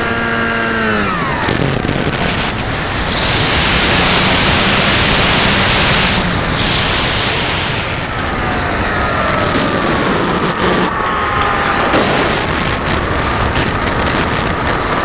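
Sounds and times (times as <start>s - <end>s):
model plane motor whine: 0.0s - 9.5s
wind rushing over microphone: 0.7s - 15.0s.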